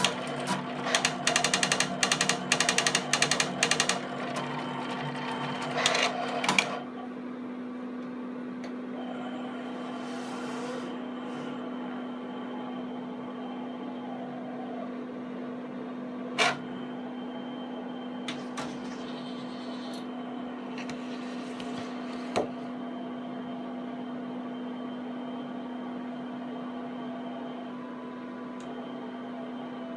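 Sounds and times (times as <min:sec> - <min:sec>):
pen plotter humming: 0:00.0 - 0:06.9.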